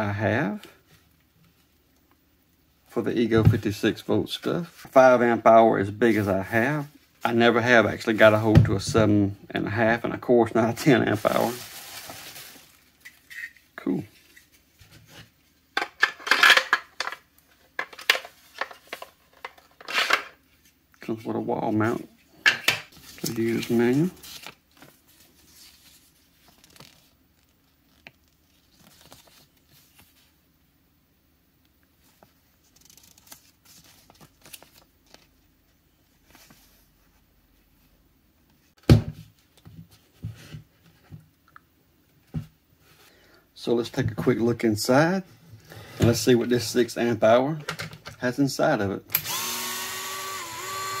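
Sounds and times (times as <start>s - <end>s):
paper pages rustling: 10.8s - 13.3s, 22.9s - 30.3s, 32.0s - 35.5s
plastic parts clicking and knocking: 47.6s - 48.2s.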